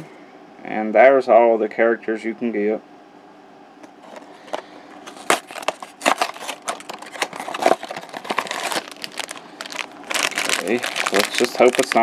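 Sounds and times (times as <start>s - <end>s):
cardboard packaging rustling: 4.0s - 12.0s.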